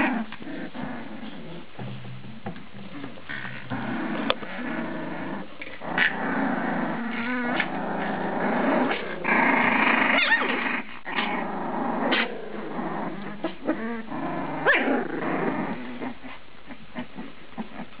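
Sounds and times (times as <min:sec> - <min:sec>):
puppies growling: 0:00.0 - 0:18.0
puppy yips and squeals: 0:10.2 - 0:10.6.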